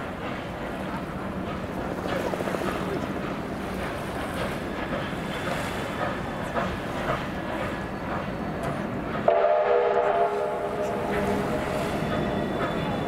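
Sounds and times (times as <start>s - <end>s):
train chime whistle: 9.2s - 13.0s.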